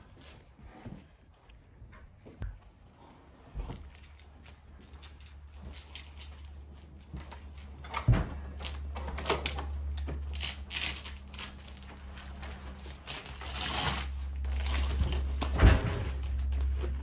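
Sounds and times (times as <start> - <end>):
low hum: 3.6 - 17.0.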